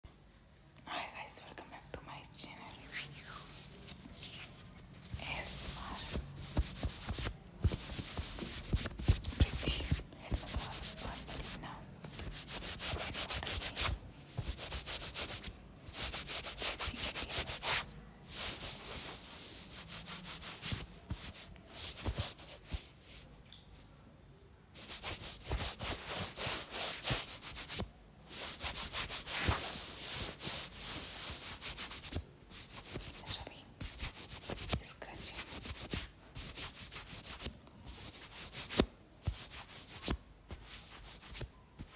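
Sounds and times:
fingers rubbing through hair: 2.4 - 23.2, 24.8 - 41.9.

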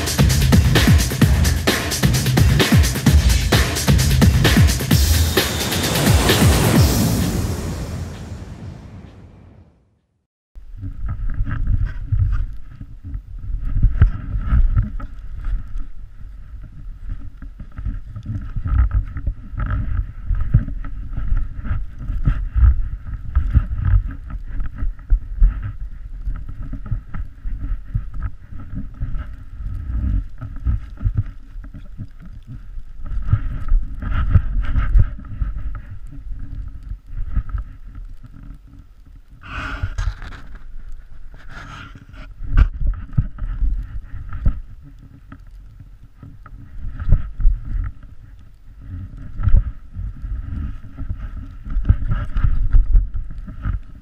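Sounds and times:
board sliding through powder snow: 5.0 - 9.2.

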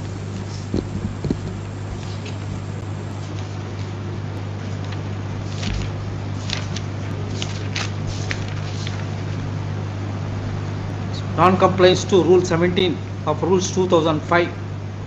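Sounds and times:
electrical hum with hiss: 0.0 - 15.0
paper rustling: 0.4 - 2.5, 4.6 - 9.5.

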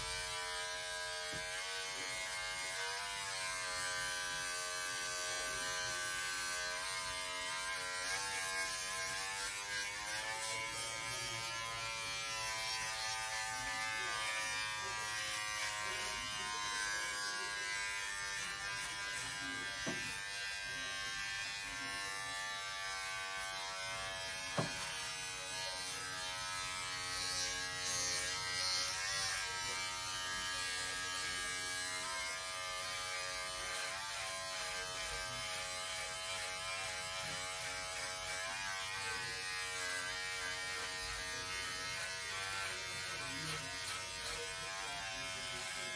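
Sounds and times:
electric shaver buzzing: 0.0 - 45.9.

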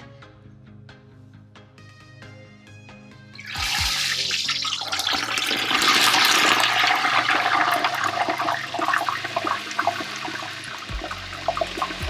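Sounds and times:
hot oil bubbling and sizzling: 3.4 - 12.0
oil crackling and popping: 3.4 - 12.0.

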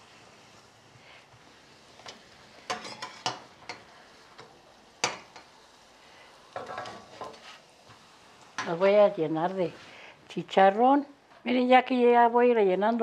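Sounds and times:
tortillas sizzling in oil: 0.0 - 12.0
fork clicking and scraping pan: 2.0 - 3.8.

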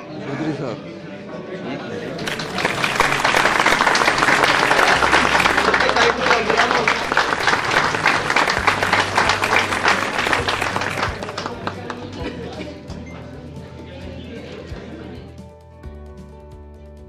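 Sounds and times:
crowd clapping: 2.2 - 12.6.

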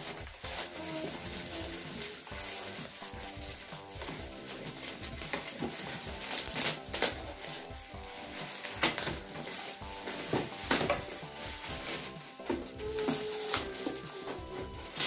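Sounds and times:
metallic wrapping paper tearing: 0.0 - 15.0.

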